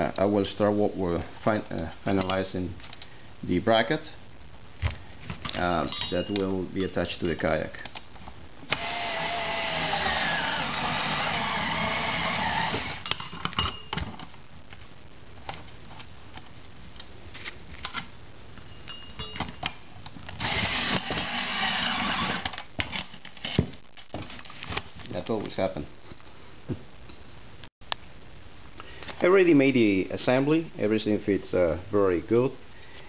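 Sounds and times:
cordless drill spinning bolt: 0:08.7 - 0:13.1, 0:20.4 - 0:22.6.

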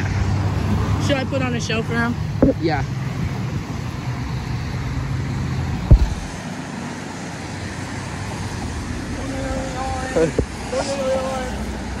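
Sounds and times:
car engine hum: 0:00.0 - 0:12.0
tyres on wet road: 0:00.0 - 0:12.0
sharp thump: 0:05.8 - 0:06.4.

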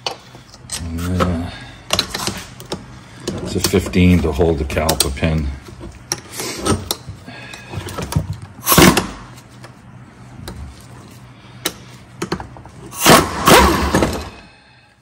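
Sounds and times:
impact wrench hammering: 0:11.7 - 0:14.4.

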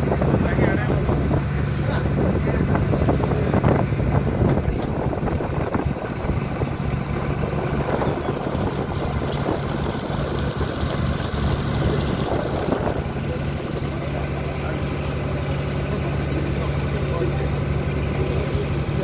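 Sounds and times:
wind buffeting microphone: 0:00.0 - 0:15.0
motorboat engine drone: 0:00.0 - 0:19.0
water splashing along hull: 0:00.0 - 0:19.0.

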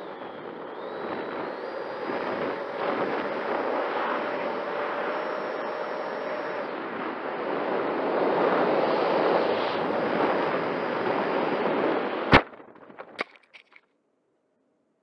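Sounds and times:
rushing airflow and fan noise: 0:00.0 - 0:12.4
loud crash into ground: 0:12.3 - 0:13.4
knocks tumbling through grass: 0:12.3 - 0:13.8.

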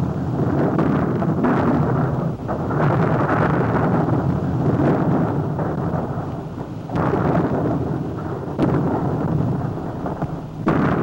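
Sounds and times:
thunder-like rumbling: 0:00.0 - 0:11.0.

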